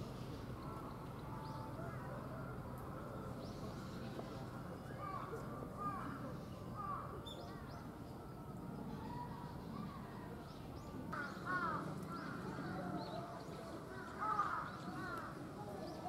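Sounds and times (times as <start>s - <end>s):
crows cawing: 11.2s - 12.4s, 14.0s - 15.3s.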